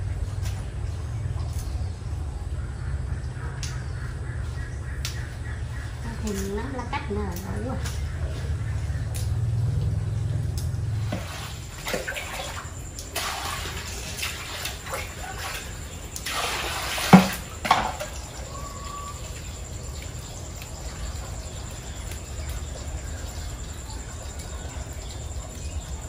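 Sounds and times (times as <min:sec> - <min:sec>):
water splashing: 0:06.0 - 0:26.0
water pouring into metal basin: 0:11.0 - 0:22.0.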